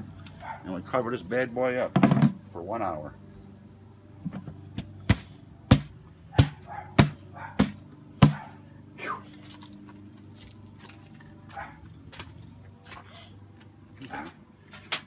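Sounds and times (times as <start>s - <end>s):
hand pounding plastic lid: 5.1s - 8.4s.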